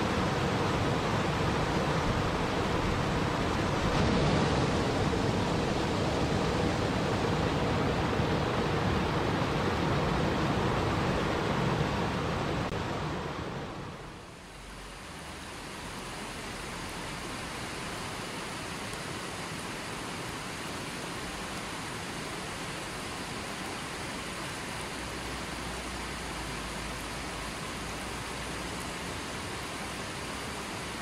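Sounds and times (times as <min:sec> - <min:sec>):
stream running over stones: 0:00.0 - 0:31.0
water cascading over rocks: 0:00.0 - 0:31.0.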